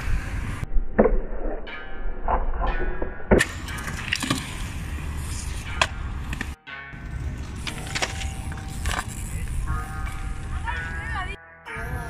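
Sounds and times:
skateboard wheels rolling on concrete: 0:03.5 - 0:11.4.

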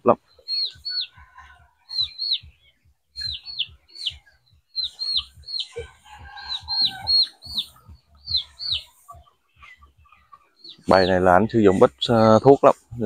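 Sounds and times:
soft low thuds: 0:00.0 - 0:08.9
chicken clucking: 0:00.0 - 0:13.0
chickens peeping: 0:00.0 - 0:13.0.

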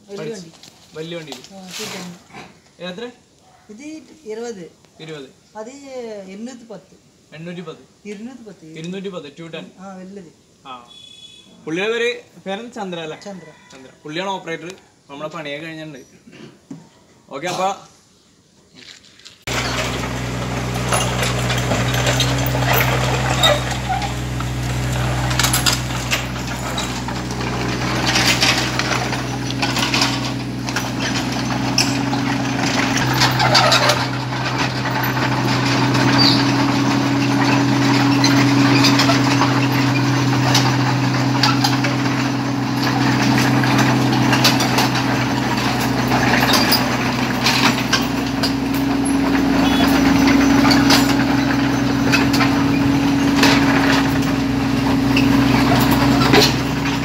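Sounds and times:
excavator diesel engine running: 0:19.5 - 0:57.0
tracks clanking and squeaking: 0:19.5 - 0:57.0.

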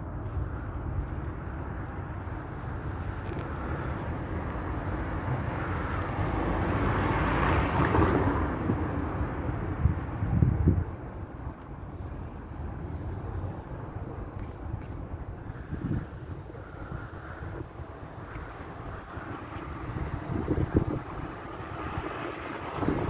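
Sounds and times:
vehicle passing: 0:03.4 - 0:09.9.

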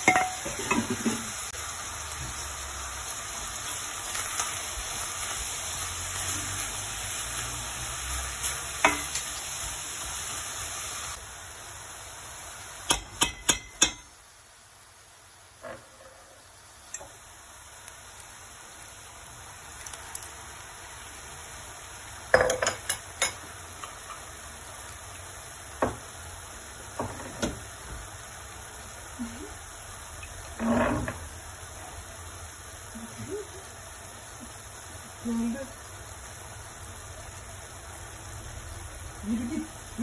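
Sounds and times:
utensil clinking on a pan: 0:00.0 - 0:01.3, 0:08.4 - 0:09.3, 0:12.9 - 0:14.2, 0:22.3 - 0:24.3
food sizzling in a pan: 0:00.0 - 0:40.0.

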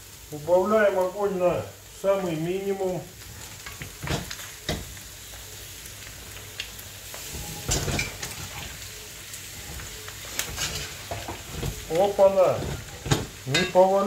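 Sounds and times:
meat and onion sizzling: 0:00.0 - 0:14.0
spatula knocking and scraping pan: 0:09.6 - 0:13.9.

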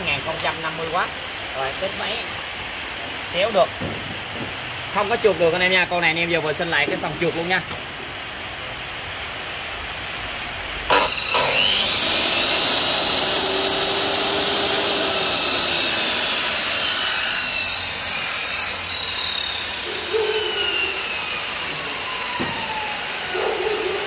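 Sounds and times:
miter saw whining: 0:10.9 - 0:24.0.

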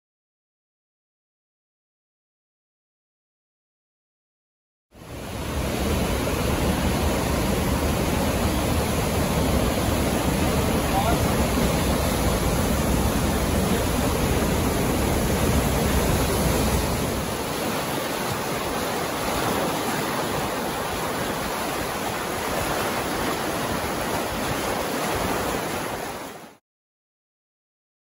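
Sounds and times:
waterfall and creek rushing: 0:05.0 - 0:26.6.

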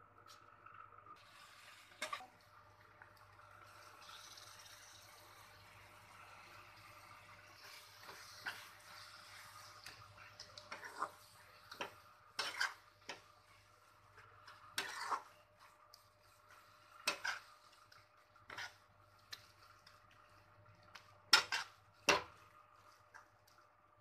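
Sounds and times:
faint steady hum: 0:00.0 - 0:24.0
metal spatula scraping a pan: 0:06.2 - 0:20.0, 0:21.3 - 0:23.2.

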